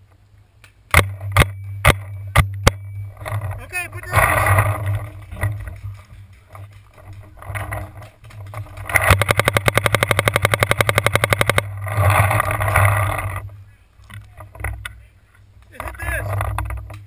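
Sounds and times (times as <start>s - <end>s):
rustling and knocking from movement: 1.0s - 17.0s
paintball marker rapid firing: 8.0s - 11.7s.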